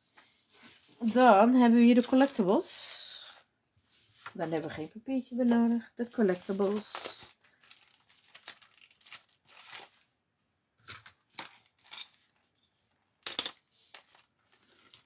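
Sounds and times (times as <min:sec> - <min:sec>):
cellophane wrapper crinkling: 0:00.5 - 0:03.5, 0:05.9 - 0:10.1, 0:10.8 - 0:13.2, 0:13.8 - 0:15.0.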